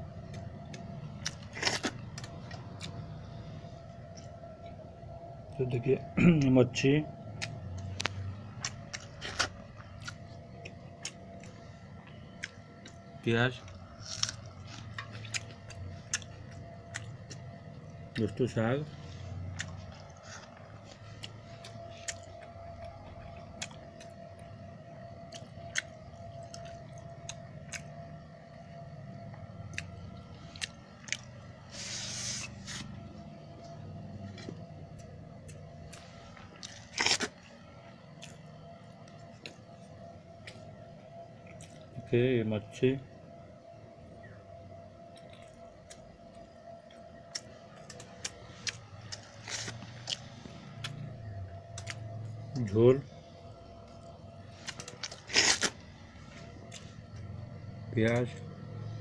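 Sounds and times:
faint steady hum: 0:00.0 - 0:59.0
soft chewing: 0:00.2 - 0:05.6, 0:07.2 - 0:42.0, 0:45.0 - 0:57.4.

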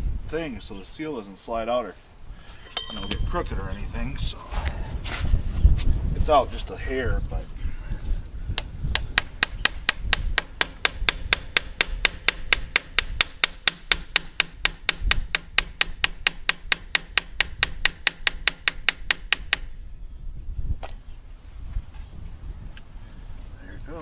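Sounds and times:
light metal tapping on metal: 0:02.8 - 0:03.4.

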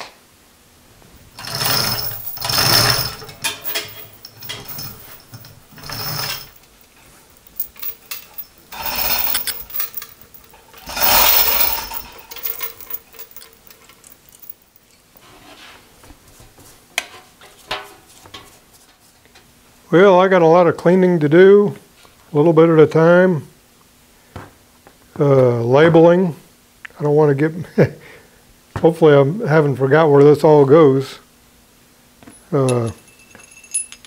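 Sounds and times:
metal clanking: 0:01.3 - 0:14.5
steel chain rattling: 0:01.3 - 0:14.8, 0:32.6 - 0:34.0
scraping and scrubbing: 0:01.4 - 0:14.5.

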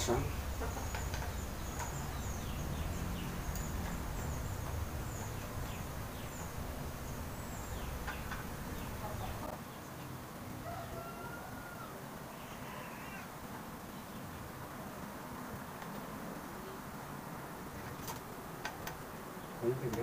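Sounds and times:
steady low rumble: 0:00.0 - 0:09.5
birds chirping: 0:00.0 - 0:20.0.

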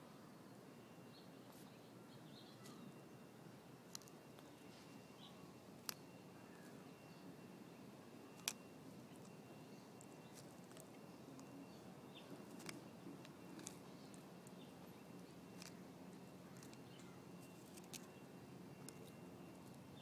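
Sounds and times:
tortoise beak crunching: 0:08.3 - 0:11.6, 0:12.2 - 0:19.8.

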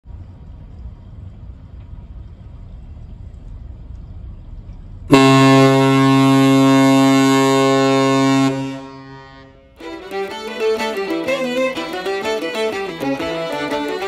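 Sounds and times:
low steady rumble: 0:00.0 - 0:14.0
ship's horn blast: 0:05.1 - 0:14.0.

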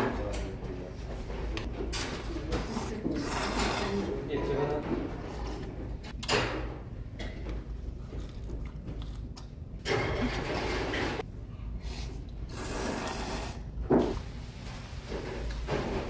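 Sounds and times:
person slurping noodles: 0:11.8 - 0:13.7.

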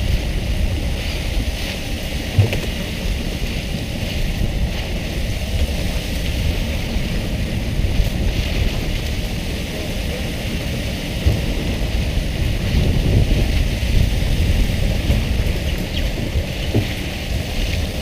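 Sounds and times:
low rumble: 0:00.0 - 0:18.0
sea water splashing: 0:00.0 - 0:18.0
wind on microphone: 0:00.0 - 0:18.0.

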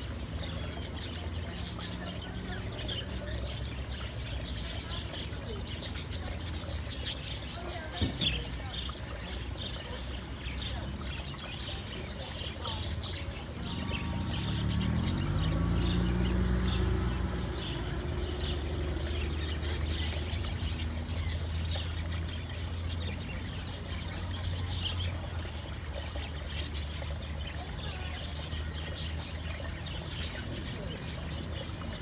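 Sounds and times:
stream water over rocks: 0:00.0 - 0:32.0.

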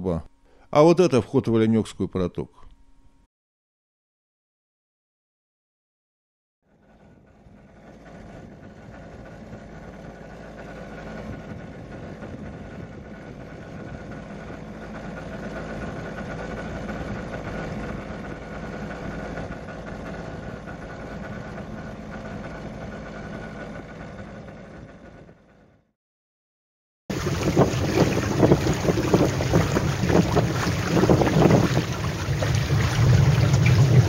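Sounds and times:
rushing wash: 0:27.1 - 0:34.0.

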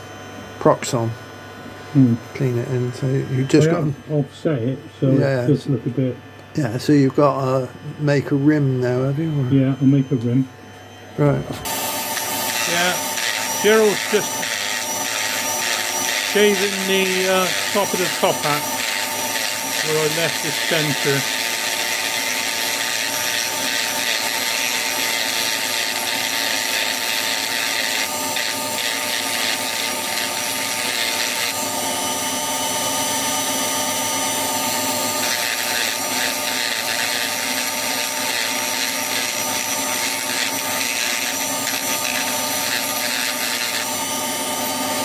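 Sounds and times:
rotary tool motor whine: 0:00.0 - 0:45.0
abrasive disc grinding wood: 0:11.6 - 0:32.4, 0:34.5 - 0:45.0.

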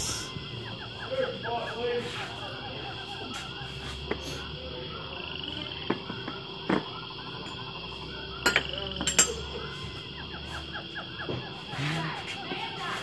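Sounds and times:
high-pitched background drone: 0:00.0 - 0:13.0.

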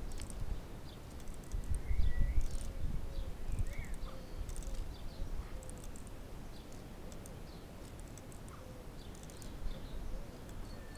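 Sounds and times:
small birds chirping: 0:00.0 - 0:10.9
plastic ratchet clicking: 0:04.5 - 0:04.8.

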